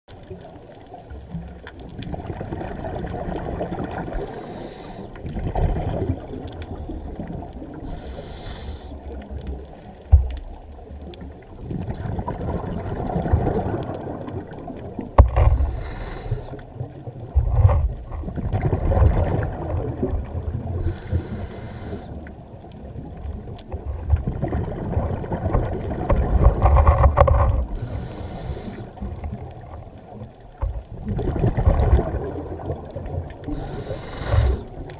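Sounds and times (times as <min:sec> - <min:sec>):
exhaled bubbles bursting: 0:02.0 - 0:04.3, 0:05.2 - 0:07.9, 0:11.6 - 0:15.6, 0:17.4 - 0:20.9, 0:22.9 - 0:26.9, 0:30.9 - 0:34.9
regulator inhale rushing: 0:04.2 - 0:05.2, 0:07.8 - 0:09.0, 0:15.5 - 0:16.6, 0:20.8 - 0:22.2, 0:27.8 - 0:29.0, 0:33.5 - 0:34.8.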